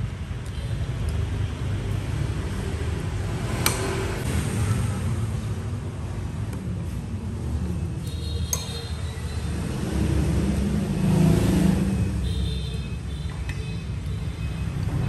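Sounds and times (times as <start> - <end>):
road traffic rumbling: 0.0 - 15.0
vehicle passing: 9.4 - 12.2.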